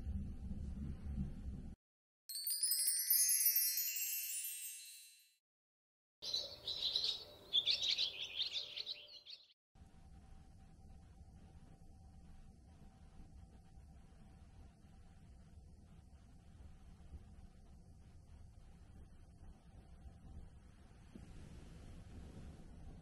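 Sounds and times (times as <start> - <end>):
wind chime tones: 2.3 - 5.4
small birds chirping: 6.2 - 9.5.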